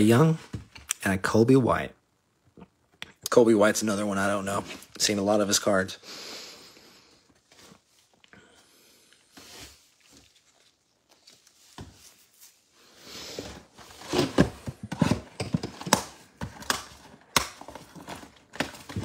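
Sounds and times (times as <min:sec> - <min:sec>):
cardboard and plastic wrap rustling: 0:07.3 - 0:08.2, 0:09.3 - 0:19.0.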